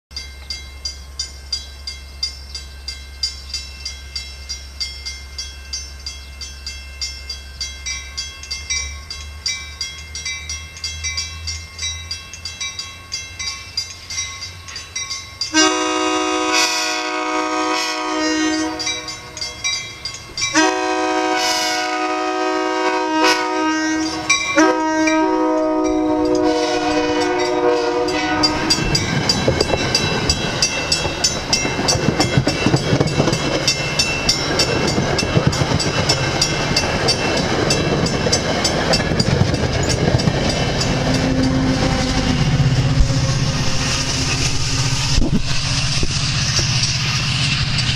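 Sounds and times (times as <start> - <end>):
crossing bell ringing: 0.1 - 47.9
train rushing past: 6.7 - 47.9
train horn: 15.5 - 19.2, 20.5 - 28.8.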